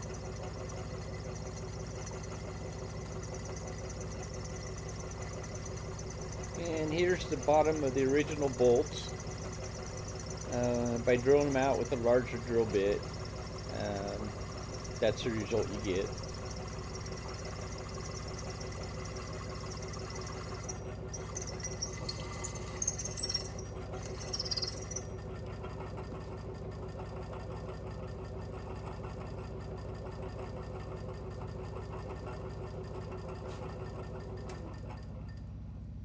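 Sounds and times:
drill cutting metal scratchily: 0:00.0 - 0:25.1
milling machine spindle hum: 0:00.0 - 0:25.5.

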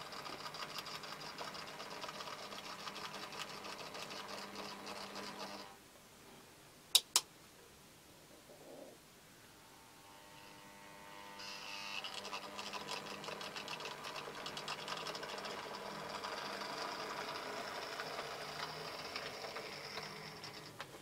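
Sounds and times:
model locomotive whirring: 0:00.0 - 0:05.7, 0:11.4 - 0:20.8.

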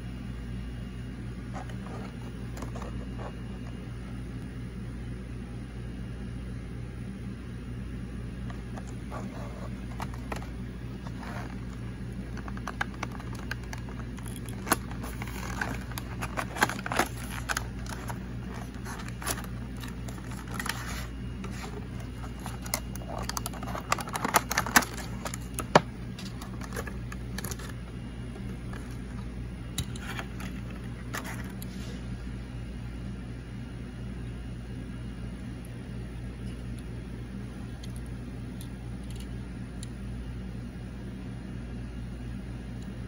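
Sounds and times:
steady low hum: 0:00.0 - 0:43.0
stiff plastic crinkling: 0:08.5 - 0:31.8.

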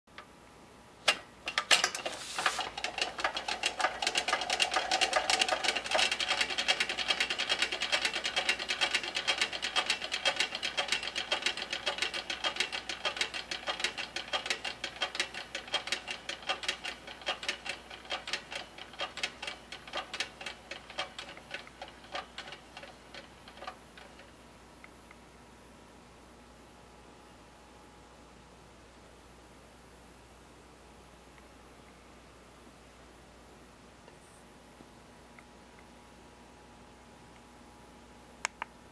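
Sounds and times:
clockwork motor ticking: 0:02.6 - 0:24.3.

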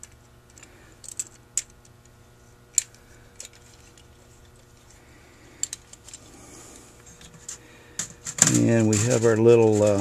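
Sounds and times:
small metal parts clicking: 0:00.0 - 0:02.0, 0:02.7 - 0:04.9, 0:05.6 - 0:06.3.

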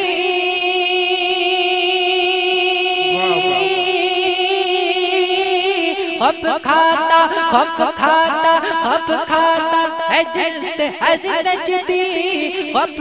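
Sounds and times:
man singing: 0:03.1 - 0:03.9.

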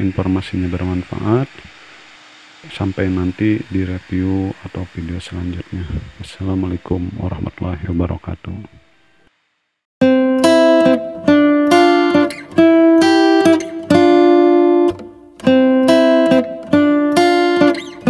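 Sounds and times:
plucked-string melody: 0:10.0 - 0:18.0.

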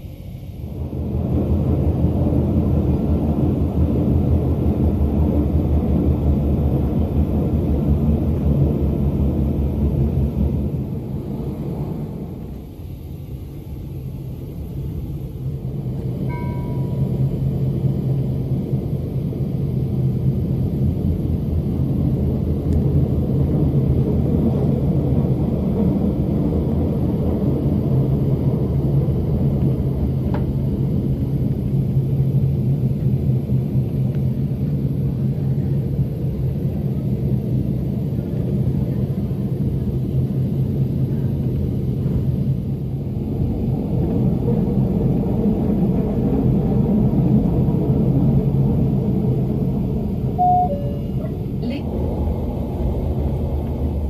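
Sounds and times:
train rumbling: 0:00.0 - 0:54.0
short high beep: 0:50.4 - 0:51.4.

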